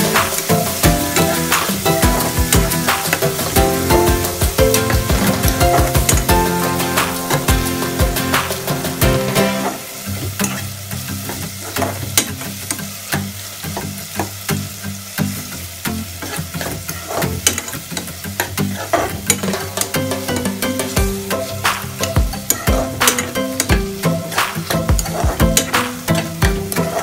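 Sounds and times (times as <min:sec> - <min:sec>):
background music: 0:00.0 - 0:10.4, 0:19.5 - 0:27.0
tomatoes sizzling in oil: 0:00.0 - 0:27.0.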